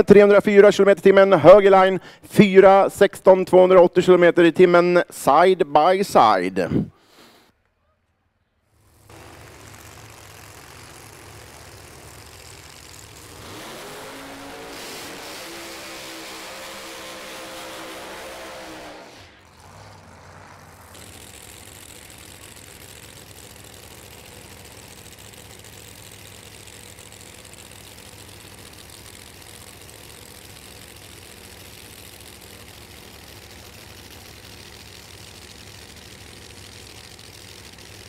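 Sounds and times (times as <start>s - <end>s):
engine idling: 7.6s - 38.0s
higher engine note: 8.6s - 38.0s.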